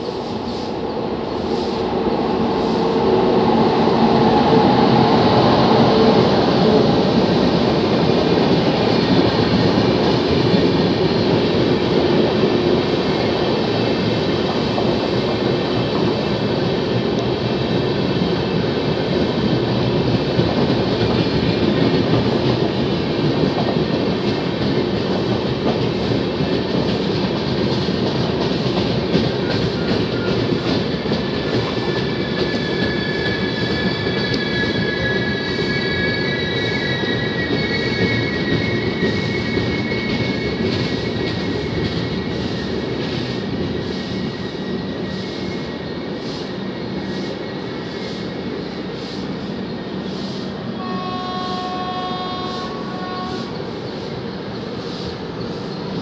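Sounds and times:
train wheels rumbling on rails: 0.0 - 56.0
wheel squeal: 29.3 - 48.2.

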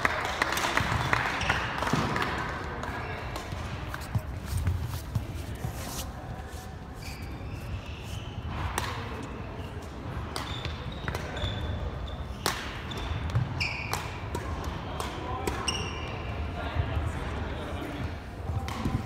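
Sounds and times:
rackets hitting shuttlecocks: 0.8 - 5.3, 8.4 - 9.3, 10.2 - 11.6, 12.3 - 16.2, 18.5 - 19.0
sneakers squeaking on floor: 2.9 - 14.4, 15.6 - 16.3.

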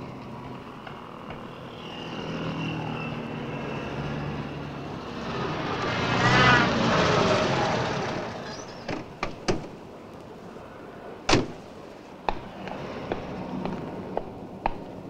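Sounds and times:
cartoon car engine: 5.5 - 8.7
car door slam: 8.9 - 9.8, 11.3 - 11.6
car door clicks: 11.3 - 11.6.

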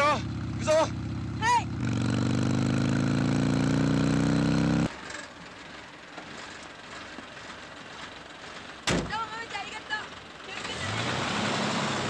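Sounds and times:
motorcycle engine running: 0.0 - 6.0.

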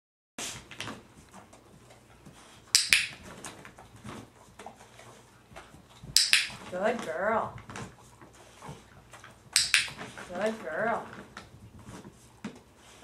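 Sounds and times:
training clicker double click: 2.8 - 3.2, 6.2 - 6.6, 9.6 - 9.9.

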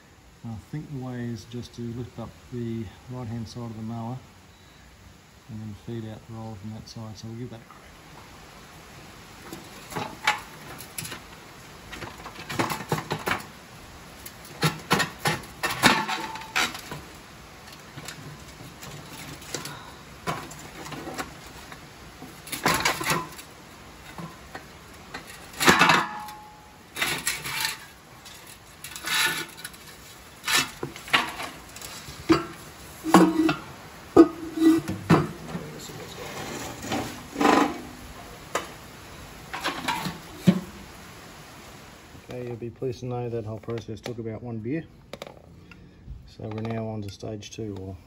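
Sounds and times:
metallic clanks and knocks: 14.5 - 17.0, 24.1 - 29.8, 30.4 - 35.8.

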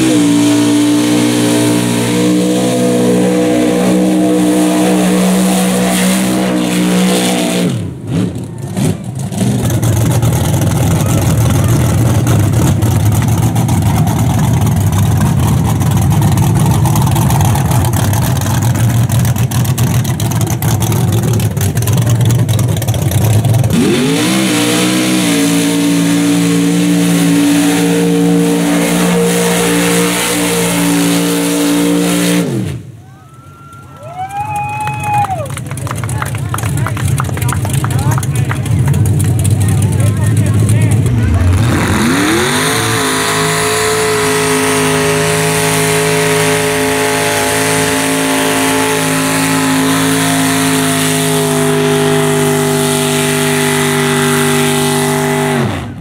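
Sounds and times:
truck engine revving: 0.0 - 33.0, 34.6 - 56.0.

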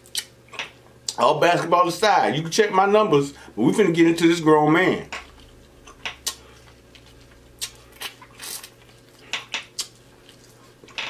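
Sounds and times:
chewing and lip smacking: 0.0 - 0.4, 5.3 - 11.0.

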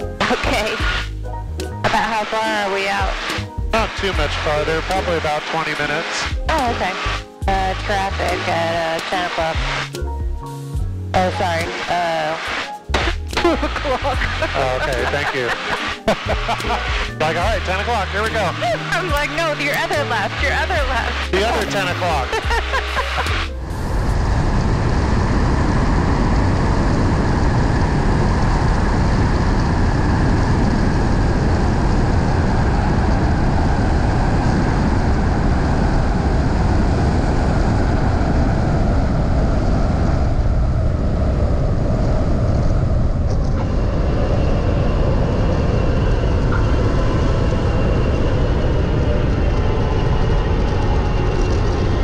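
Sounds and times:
airplane engine: 0.0 - 52.0
wind rush: 20.2 - 52.0.

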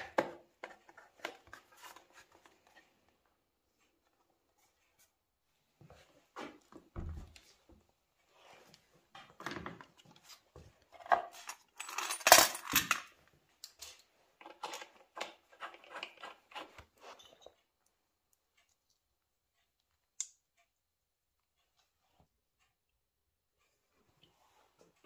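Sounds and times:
metal parts and tools clinking: 10.9 - 15.0.

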